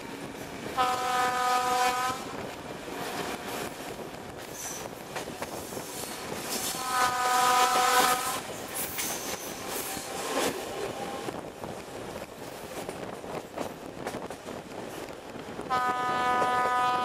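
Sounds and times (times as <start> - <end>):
train coaches rumbling and clattering: 0.0 - 17.0
locomotive horn blasts: 0.8 - 2.4, 6.7 - 8.4, 15.7 - 17.0.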